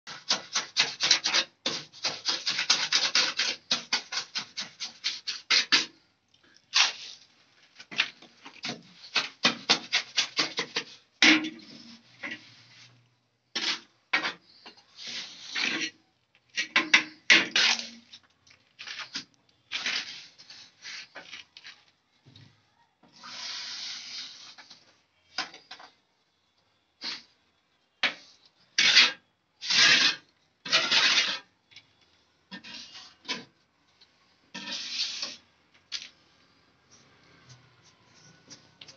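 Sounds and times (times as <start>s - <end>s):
trowel scraping wet mortar: 0.1s - 6.0s, 7.8s - 12.4s, 13.5s - 16.0s, 16.6s - 18.2s, 18.8s - 21.4s, 28.8s - 31.5s, 32.5s - 33.5s, 34.5s - 35.4s.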